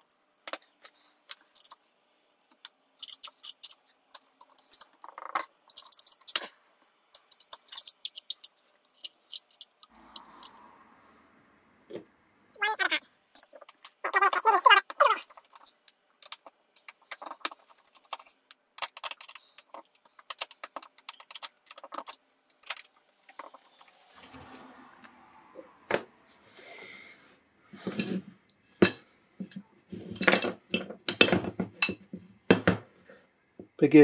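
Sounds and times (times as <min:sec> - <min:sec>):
metal parts clinking: 0:00.8 - 0:01.8, 0:02.4 - 0:10.6, 0:13.3 - 0:24.5
screwdriver clicking and scraping: 0:07.1 - 0:10.6, 0:13.4 - 0:24.6.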